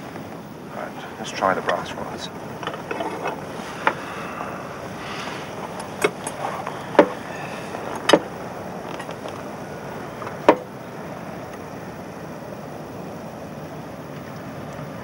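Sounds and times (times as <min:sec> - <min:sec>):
steady background hiss: 0:00.0 - 0:15.0.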